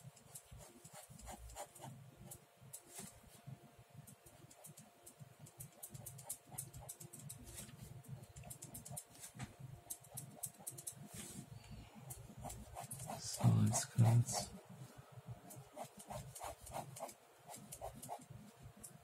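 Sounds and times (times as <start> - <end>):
ballpoint pen scratching on paper: 0.1 - 3.1, 4.3 - 7.8, 8.4 - 11.3, 12.1 - 14.5, 15.5 - 18.3.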